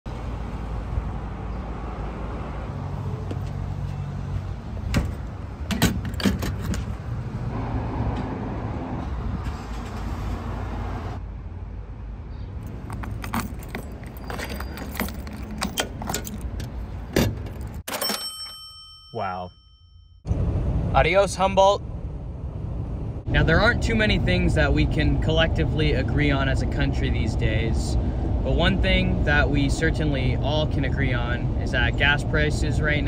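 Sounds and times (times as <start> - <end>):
engine and tyre rumble: 0.1 - 17.9, 20.3 - 33.0
jangling rattles: 12.6 - 18.5.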